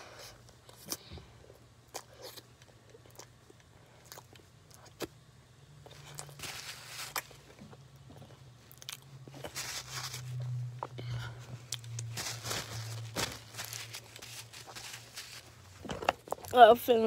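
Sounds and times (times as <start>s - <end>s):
crunchy snack being chewed: 1.9s - 5.1s, 5.8s - 10.5s.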